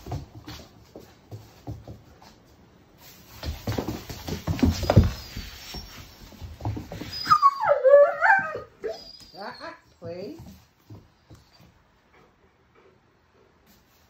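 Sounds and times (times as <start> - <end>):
broom sweeping hard floor: 0.0 - 7.3
puppy scuffling with broom: 0.0 - 7.6, 8.5 - 11.8, 13.6 - 14.0
puppy whining: 6.8 - 10.0.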